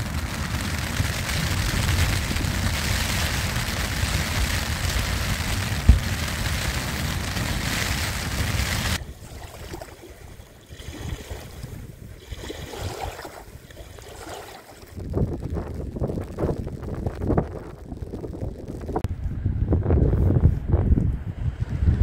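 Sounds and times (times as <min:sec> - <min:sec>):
wind and rain on tent: 0:00.0 - 0:22.0
wind rumble on microphone: 0:00.0 - 0:22.0
water lapping against bank: 0:08.6 - 0:15.0.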